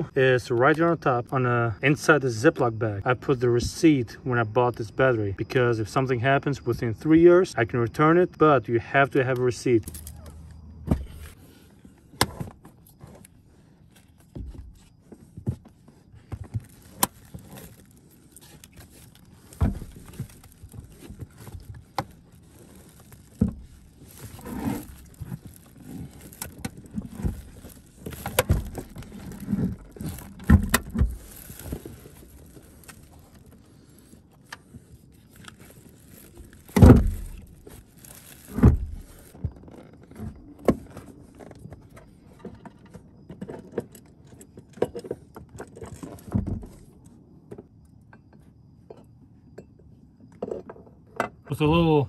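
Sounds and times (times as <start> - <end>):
plastic case knocking and scraping: 10.8 - 11.4, 23.4 - 32.0.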